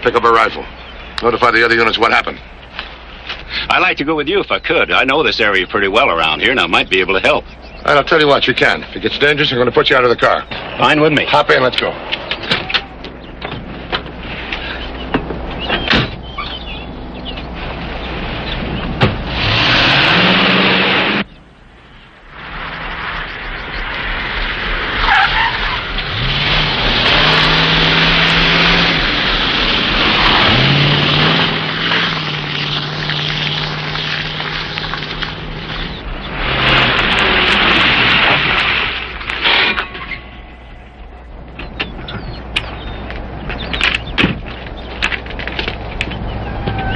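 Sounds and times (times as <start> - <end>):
road noise: 0.0 - 46.9
car engine accelerating hard: 16.2 - 21.4, 22.3 - 38.8.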